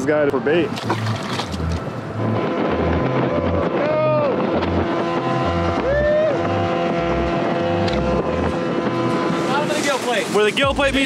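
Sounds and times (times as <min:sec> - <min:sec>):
wind on microphone: 0:00.2 - 0:11.0
outboard motor boat running: 0:00.3 - 0:03.6, 0:04.2 - 0:11.0
water spray off hull: 0:08.9 - 0:11.0
music with steady bass beat: 0:10.6 - 0:11.0.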